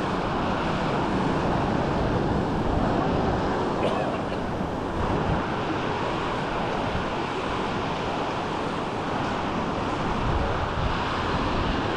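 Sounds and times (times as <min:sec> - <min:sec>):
waves washing onto shore: 0:00.0 - 0:11.9
wind rumbling on microphone: 0:00.0 - 0:11.9.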